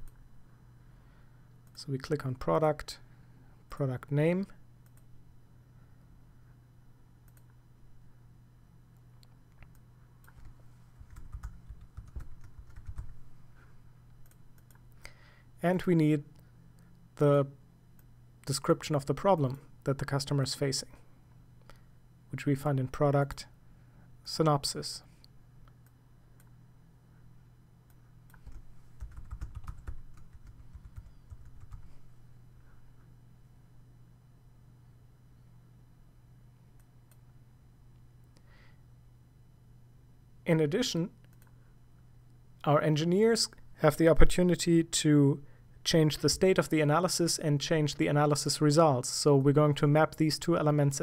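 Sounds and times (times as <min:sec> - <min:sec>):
low steady hum: 0:00.0 - 0:51.0
keyboard typing: 0:09.7 - 0:13.2, 0:28.3 - 0:31.9.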